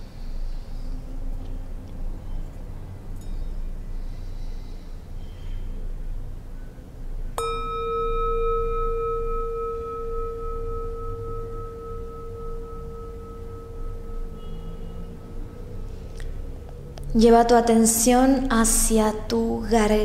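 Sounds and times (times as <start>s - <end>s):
singing bowl ringing: 3.2s - 3.8s, 7.4s - 16.6s
singing bowl struck: 7.4s - 16.5s.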